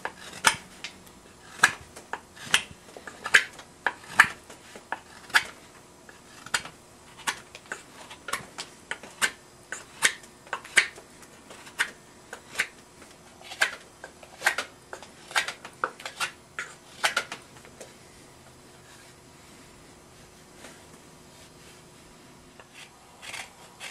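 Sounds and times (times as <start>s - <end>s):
carving knife slicing wood: 0.0s - 12.8s, 13.4s - 17.4s, 22.6s - 23.9s.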